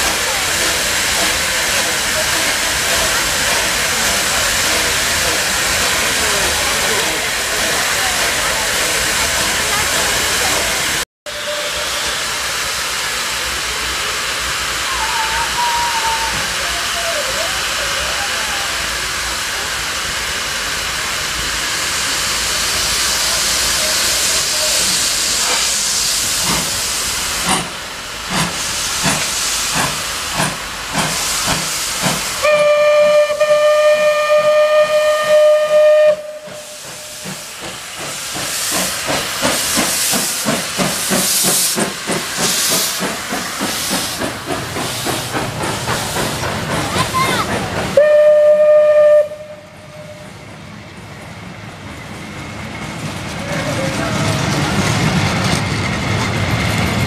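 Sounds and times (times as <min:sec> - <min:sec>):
hiss of escaping steam: 0:00.0 - 0:53.0
steam whistle blast: 0:11.3 - 0:12.4, 0:14.8 - 0:16.6, 0:32.4 - 0:37.2, 0:48.0 - 0:50.4.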